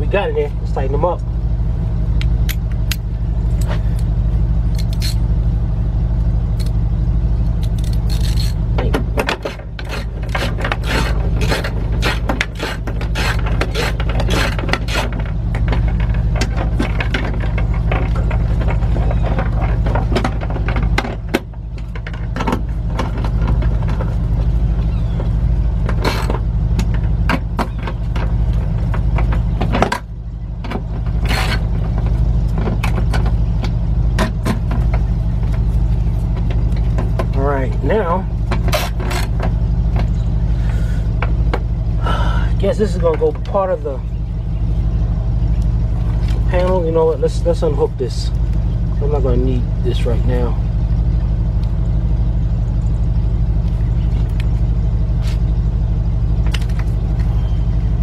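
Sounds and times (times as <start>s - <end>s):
steady low hum: 0.0s - 58.0s
wrench clicking and scraping: 4.7s - 5.2s, 7.6s - 18.4s.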